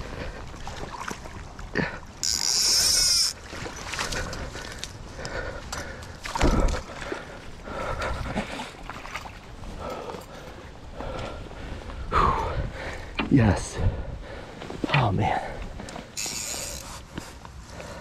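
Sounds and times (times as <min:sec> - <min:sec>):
fishing reel drag buzzing: 0:02.2 - 0:03.4, 0:16.1 - 0:17.1.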